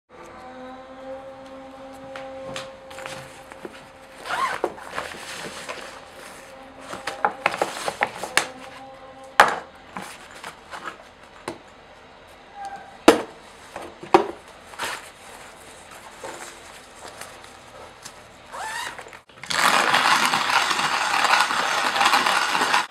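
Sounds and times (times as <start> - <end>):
fabric bag rustling: 2.9 - 8.3.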